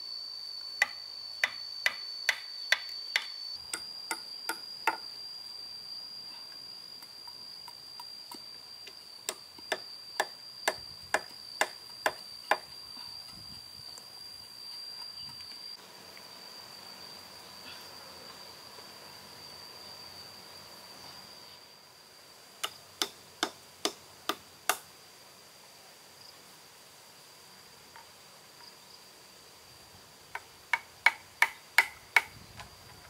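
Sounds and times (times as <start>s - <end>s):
high-pitched insect drone: 0.0s - 24.8s.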